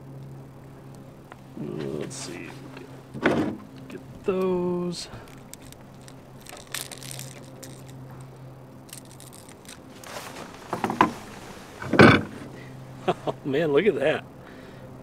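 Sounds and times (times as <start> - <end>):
fish scuffle: 5.2 - 8.0, 8.9 - 12.0
pliers clicking on metal hooks: 8.9 - 9.9.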